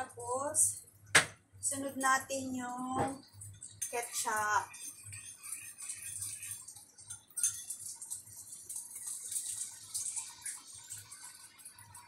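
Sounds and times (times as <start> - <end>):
garlic sizzling in hot oil: 1.8 - 12.0
sauce poured into hot oil: 3.2 - 12.0.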